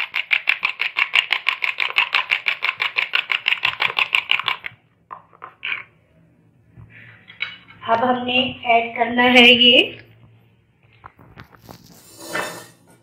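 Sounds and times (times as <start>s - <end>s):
fork beating eggs in bowl: 0.0s - 5.9s.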